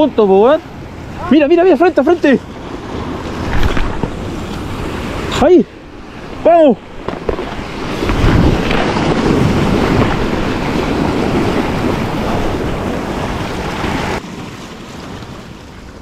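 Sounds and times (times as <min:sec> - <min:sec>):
sea surf washing: 0:00.0 - 0:16.0
wind buffeting microphone: 0:00.0 - 0:16.0.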